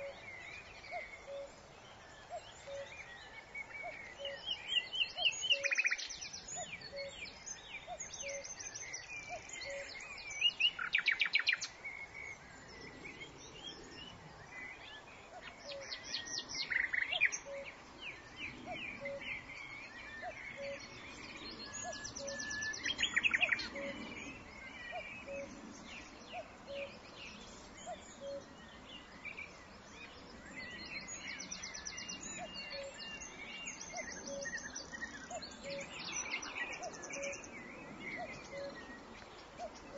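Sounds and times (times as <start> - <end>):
birds chirping and calling: 0.0 - 39.9.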